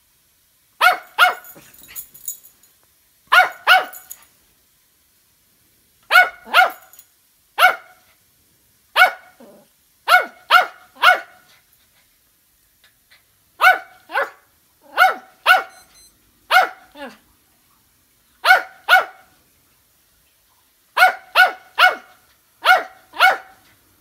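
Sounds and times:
small dog barking high-pitched: 0.8 - 2.1, 3.3 - 4.3, 6.1 - 7.0, 7.6 - 8.1, 8.9 - 11.5, 13.6 - 17.2, 18.4 - 19.4, 21.0 - 23.6.

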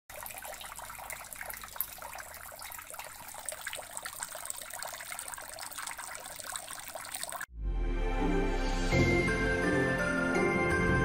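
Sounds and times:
water stream splashing into tub: 0.0 - 7.5.

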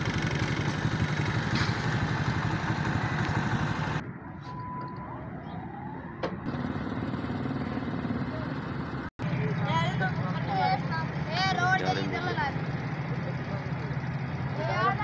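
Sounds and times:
vehicle engine idling: 0.0 - 4.0, 6.4 - 15.0.

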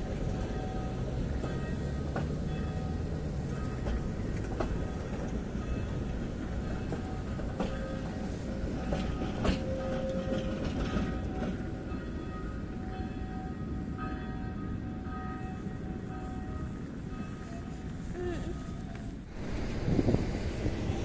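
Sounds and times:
tram wheels clacking on rail joints: 0.0 - 21.0
rolling rumble: 19.2 - 21.0.

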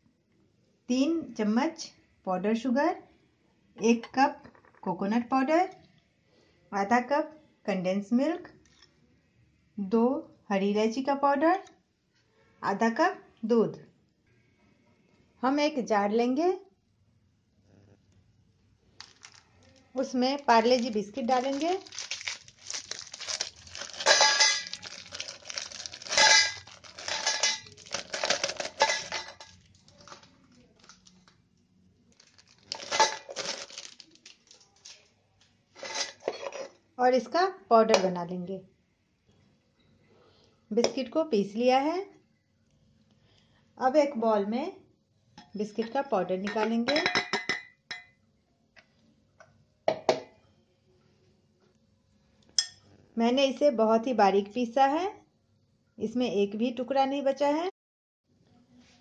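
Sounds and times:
biscuits clattering in metal jar: 19.0 - 19.4, 20.4 - 31.1, 32.2 - 35.0, 35.8 - 36.7
steel jar clinking on glass bowl: 24.0 - 24.9, 26.0 - 29.6, 46.5 - 48.2.

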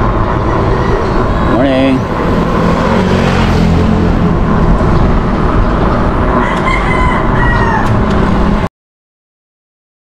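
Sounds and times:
wind rushing over microphone: 0.0 - 8.7
rooster crowing: 6.3 - 8.1.

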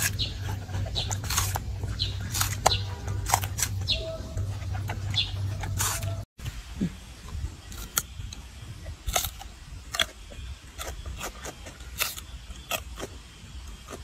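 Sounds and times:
monkey chewing cucumber crunches: 0.0 - 6.2, 8.8 - 14.0.

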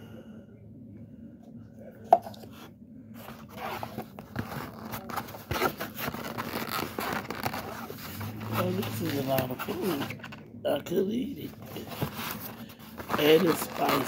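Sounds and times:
foam container scraping and creaking: 3.2 - 10.4, 11.6 - 14.0.

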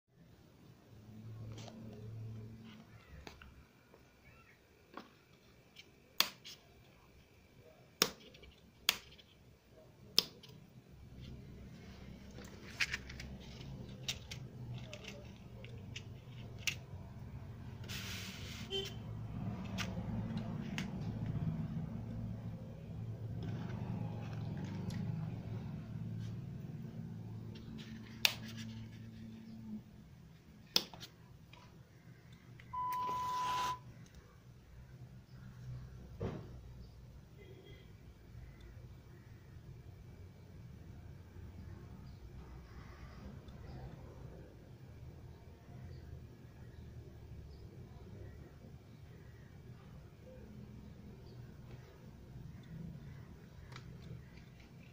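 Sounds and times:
piezo buzzer beep: 32.7 - 33.8.

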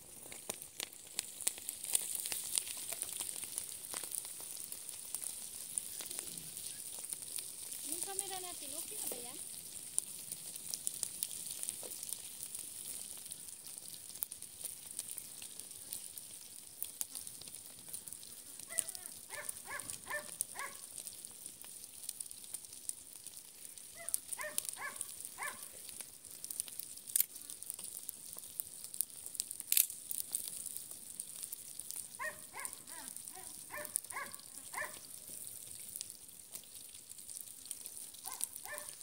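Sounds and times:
fish sizzling in oil: 0.0 - 39.0
animal yapping: 18.7 - 20.9, 24.0 - 25.7, 32.2 - 35.1, 38.2 - 39.0.

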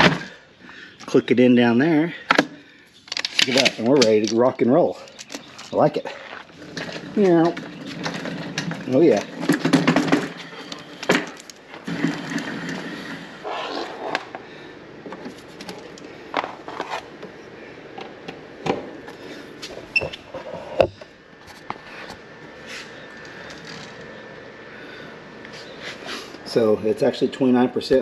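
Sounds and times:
wheels rolling on wood floor: 3.2 - 14.4.

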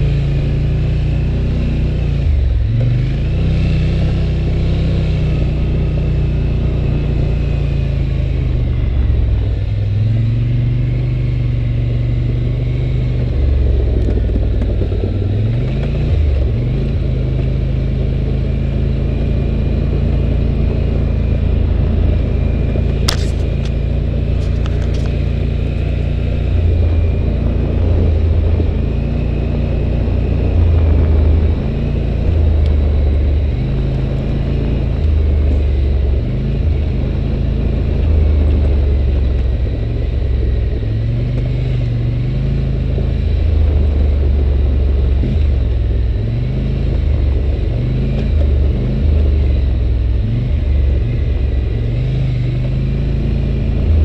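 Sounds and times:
atv engine running: 0.0 - 54.0.

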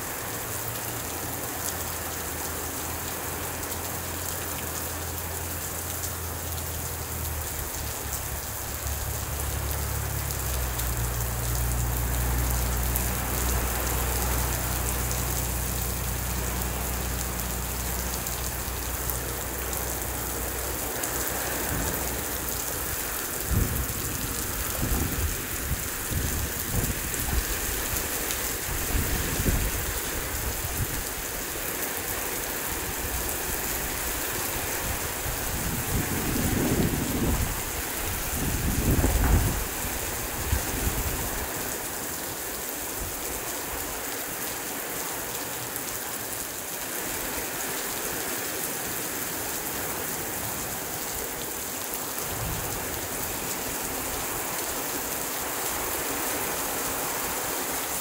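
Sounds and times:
heavy rain pouring: 0.0 - 58.0
thunder rumbling: 22.9 - 27.9, 35.4 - 39.8.

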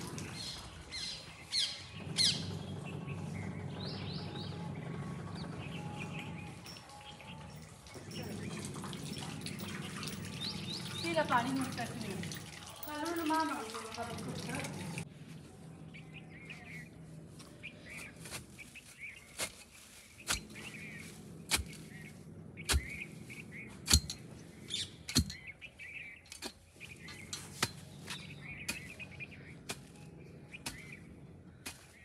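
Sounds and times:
small birds chirping: 0.0 - 32.0
fork knocking in dry fodder: 23.8 - 24.3, 26.3 - 29.0, 30.6 - 31.0.

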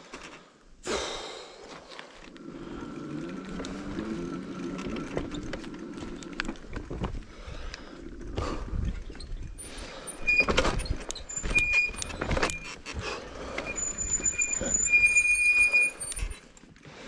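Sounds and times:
bicycle tyres and frame rattling: 1.8 - 17.0
thin high squeal: 13.7 - 16.5.

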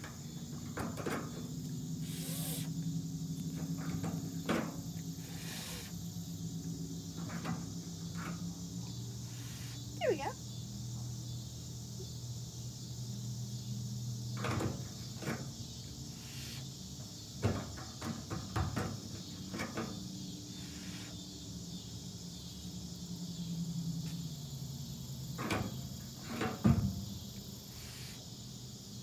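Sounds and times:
crickets chirping: 0.0 - 29.0.

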